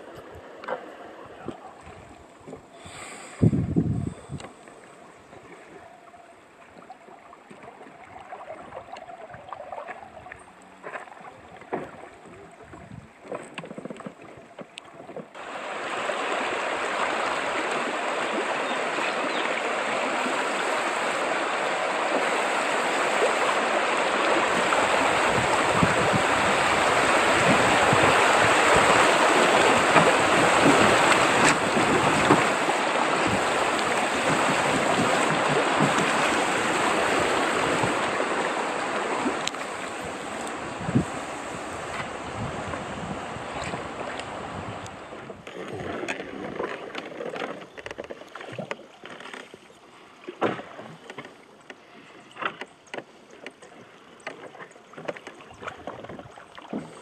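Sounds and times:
calm river water: 0.0s - 57.0s
river rapids rushing over stones: 15.4s - 42.6s.

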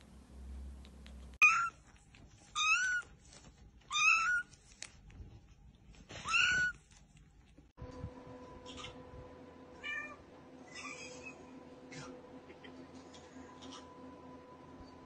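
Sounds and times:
kitten meowing: 1.4s - 1.8s.

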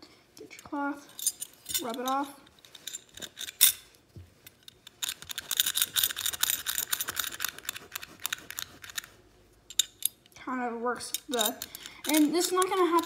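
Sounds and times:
cloth scrubbing metal buckle: 4.6s - 10.2s, 11.2s - 13.0s.

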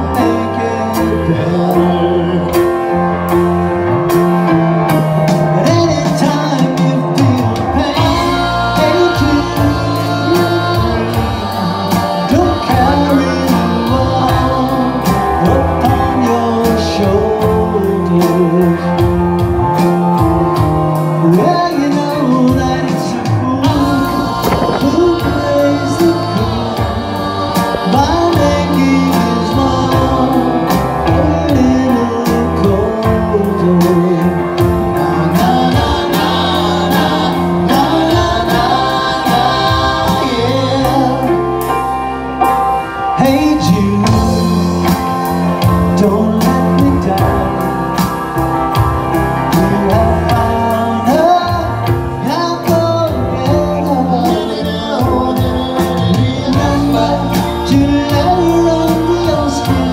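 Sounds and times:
person singing: 0.0s - 41.9s, 42.9s - 59.9s
live rock band playing: 0.0s - 59.9s.

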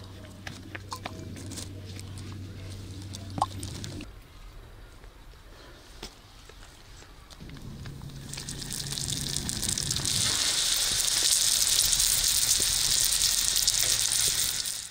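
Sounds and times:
flatbread sizzling in oil: 7.9s - 14.9s.

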